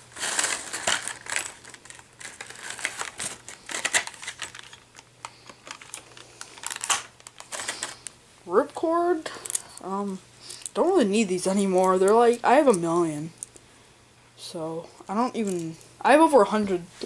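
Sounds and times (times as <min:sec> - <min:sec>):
plastic bags crinkling: 0:00.0 - 0:08.1.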